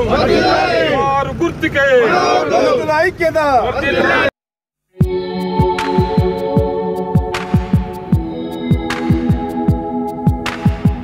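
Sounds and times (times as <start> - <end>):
held synth chords: 5.0 - 11.0.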